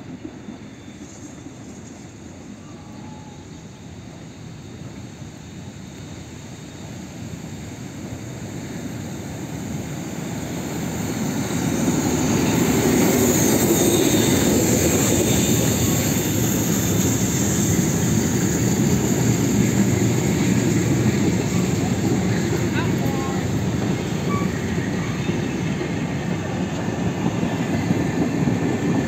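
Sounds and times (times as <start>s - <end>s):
steam locomotive passing: 0.0s - 29.0s
carriages rolling on rails: 9.5s - 29.0s.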